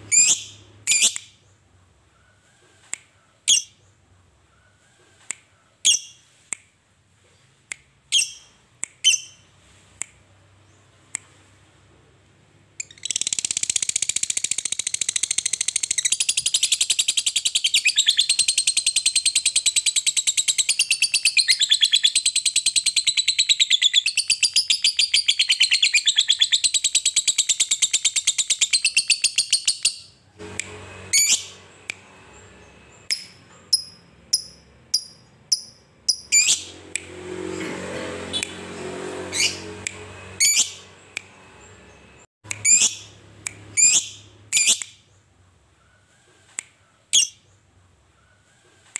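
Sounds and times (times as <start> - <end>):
bird chirps: 0.0 - 2.6, 12.8 - 36.8, 39.4 - 46.2, 46.8 - 48.5
lovebird chattering trill: 0.1 - 1.2, 33.1 - 36.7, 42.5 - 43.1, 43.8 - 44.9, 47.1 - 47.4.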